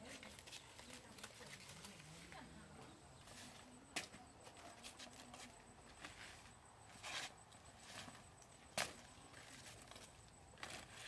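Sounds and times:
rustling scrape: 4.6s - 11.0s.

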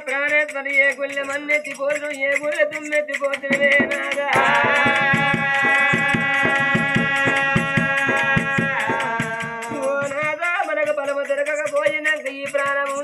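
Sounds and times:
rattling percussion: 0.0s - 13.0s
drum beat: 3.2s - 11.0s.

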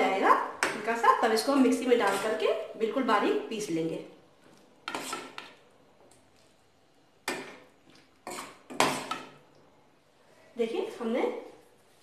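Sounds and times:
metal spoon scraping a steel pan: 1.8s - 2.5s, 4.8s - 5.5s, 8.2s - 9.3s.

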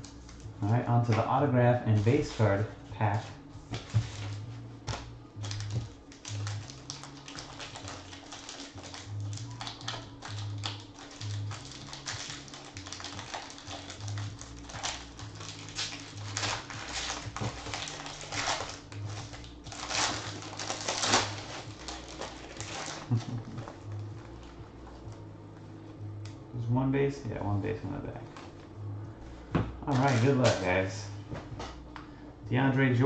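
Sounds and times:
background music with bass pulse: 0.0s - 33.0s
foil pack crinkling and tearing: 5.4s - 24.5s, 29.8s - 30.9s.

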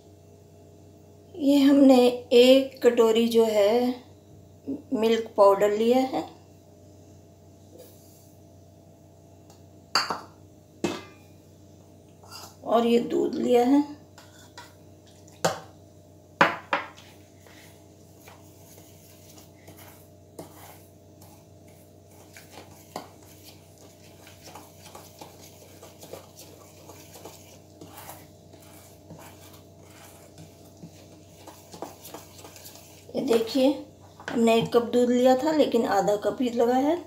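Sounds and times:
spoon scraping steel saucepan: 22.2s - 33.6s.

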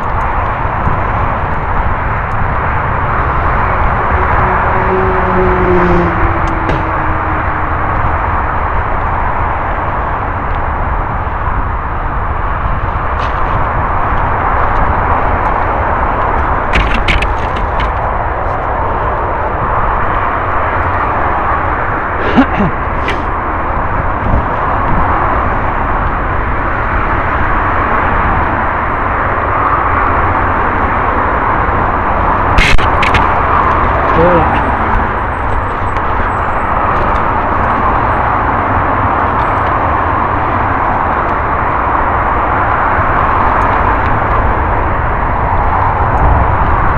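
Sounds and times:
low rumble: 0.0s - 9.7s
wind on microphone: 0.0s - 46.9s
bike clicks and rattles: 12.8s - 19.2s, 32.6s - 34.0s.

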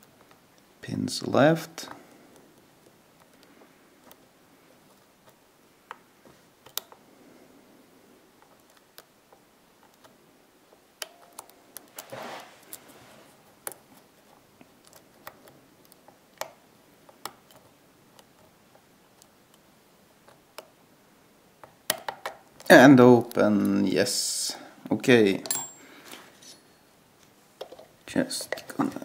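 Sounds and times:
brief rubbing sound: 12.1s - 13.3s
lock pick metallic clicks: 25.4s - 25.8s.

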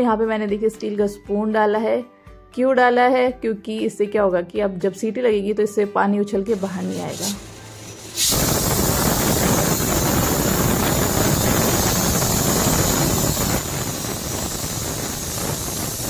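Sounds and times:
pressure cooker steam hiss: 6.5s - 16.0s.

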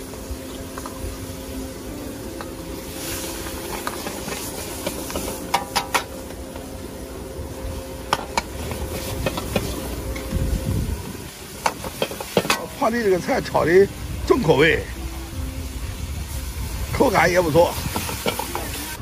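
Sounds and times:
food sizzling in a wok: 0.0s - 19.0s
ladle clanking against wok: 3.4s - 6.4s, 8.0s - 10.3s, 11.6s - 12.8s, 17.8s - 18.8s.

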